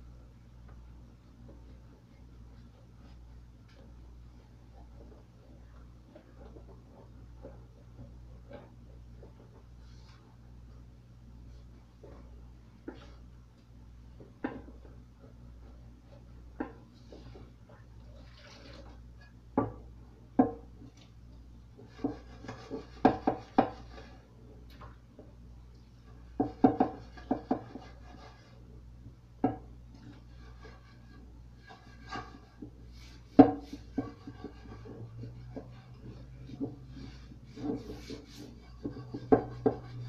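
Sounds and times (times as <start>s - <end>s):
dishes knocking in metal sink: 38.8s - 40.0s.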